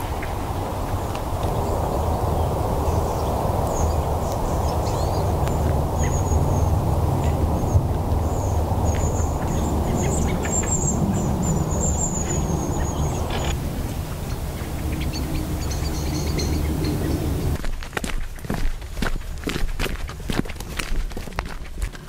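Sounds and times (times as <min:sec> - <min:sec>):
small birds chirping: 0:00.0 - 0:17.6
steady low rushing noise: 0:00.0 - 0:20.1.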